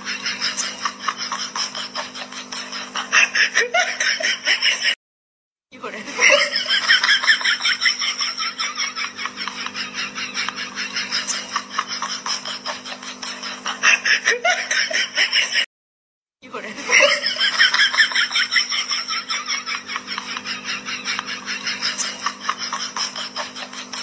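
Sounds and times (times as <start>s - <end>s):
rapid giggling laughter: 0.0s - 5.0s, 5.8s - 15.7s, 16.6s - 24.0s.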